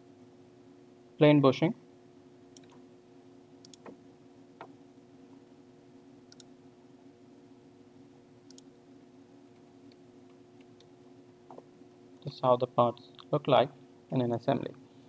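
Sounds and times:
low steady hum: 0.0 - 15.0
faint computer mouse clicks: 2.6 - 2.8, 3.6 - 4.0, 6.3 - 6.5, 8.5 - 8.7.

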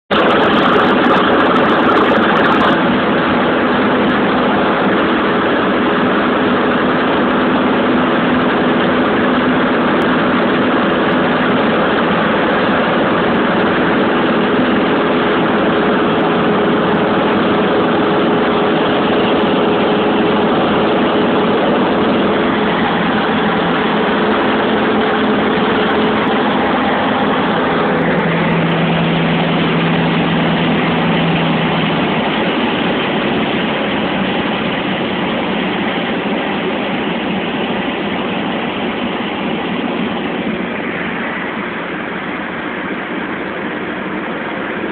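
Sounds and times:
light aircraft engine droning: 0.1 - 44.9.

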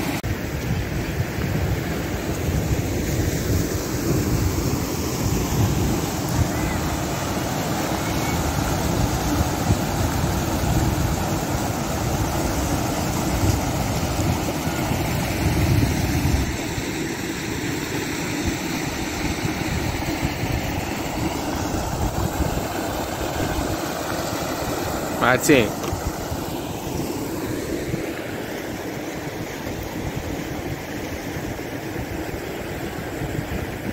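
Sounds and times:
water rushing through gravel: 0.0 - 33.9
wind rumble on microphone: 0.2 - 7.4, 8.0 - 16.9, 18.4 - 23.9, 29.4 - 33.9.

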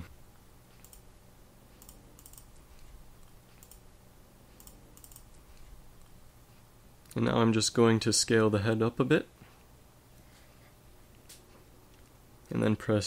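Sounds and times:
faint keyboard and mouse clicks: 0.7 - 1.0, 1.7 - 3.9, 4.5 - 6.2.

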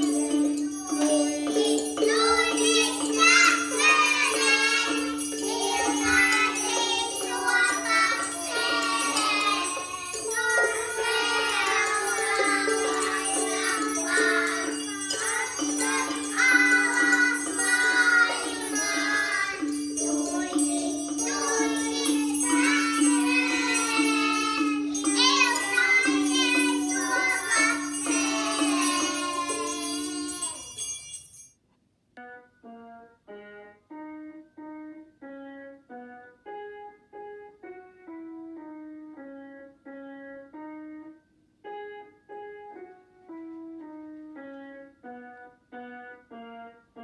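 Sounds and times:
children singing: 0.0 - 30.8
triangles and chime bars: 0.0 - 31.6.

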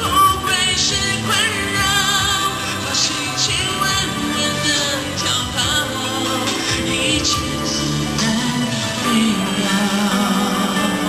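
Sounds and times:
man singing into a microphone: 0.0 - 11.0
pop music over loudspeakers: 0.0 - 11.0.

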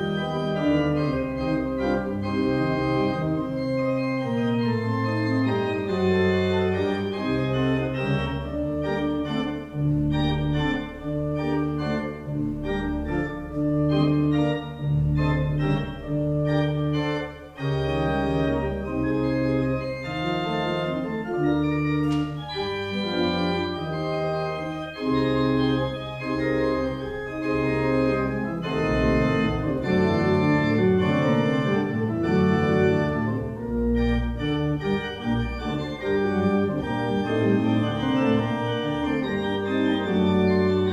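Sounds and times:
pipe organ playing chords: 0.0 - 40.9.

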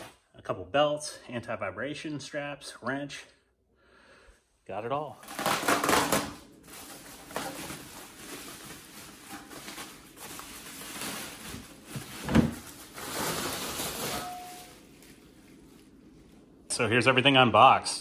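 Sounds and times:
packaging rustling and scraping: 5.2 - 16.0.

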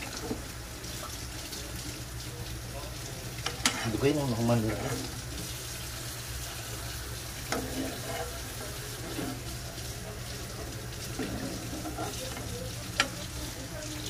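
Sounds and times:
kitchen hissing: 0.0 - 14.0
faint voices: 6.5 - 14.0.

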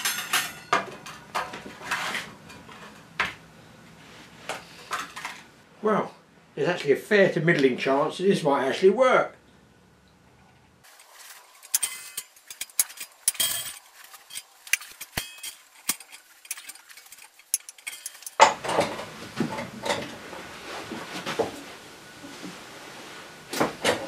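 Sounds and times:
metal rack clattering and scraping: 0.0 - 3.1, 10.8 - 20.2
loose wire clinking: 11.6 - 18.6.

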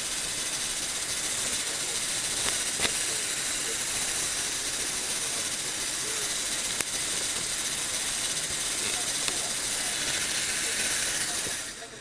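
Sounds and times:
electric motor whirring: 0.0 - 12.0
sharp click: 1.4 - 7.5.

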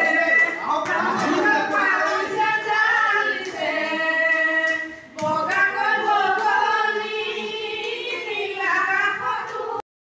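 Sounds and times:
voices singing: 0.0 - 9.8.

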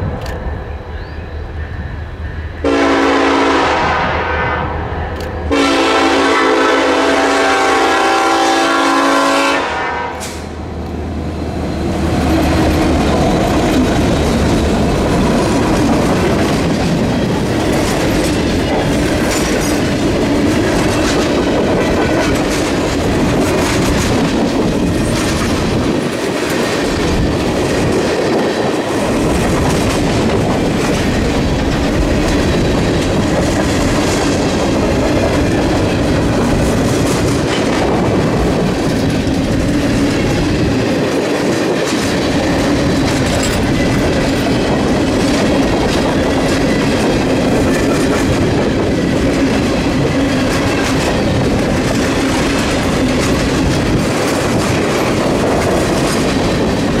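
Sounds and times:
locomotive air horn blasts: 2.6 - 10.5
train wheels clacking on rails: 10.2 - 11.0, 11.7 - 57.0.

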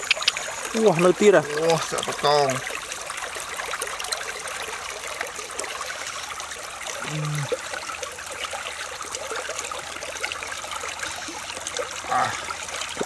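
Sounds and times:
small wet clicks: 0.0 - 0.8
water trickling: 0.0 - 13.0
short voice sound: 7.0 - 7.5.

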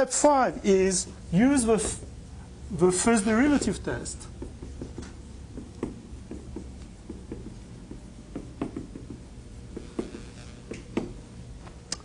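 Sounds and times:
writing on a board: 3.5 - 11.2.

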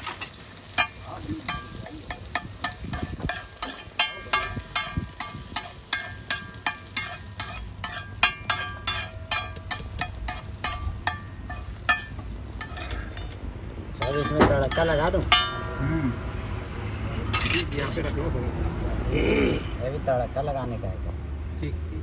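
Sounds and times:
metal spatula clinking on griddle: 0.0 - 13.4, 14.0 - 15.9, 17.3 - 18.2
eggs sizzling: 0.0 - 15.8.

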